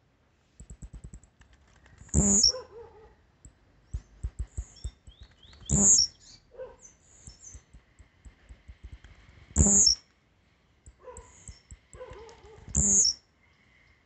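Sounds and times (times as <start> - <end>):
small bird singing short phrase: 2.1 - 2.6, 4.0 - 7.6, 9.6 - 10.0, 12.7 - 13.2.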